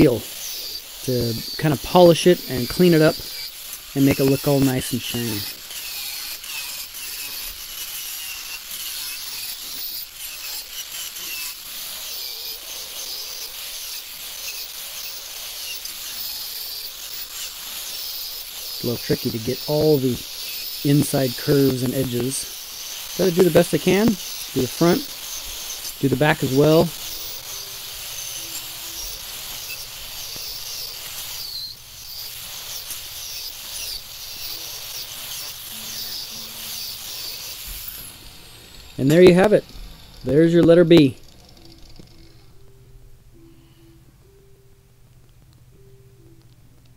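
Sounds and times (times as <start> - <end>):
wire wheel grinder on metal: 0.0 - 42.6.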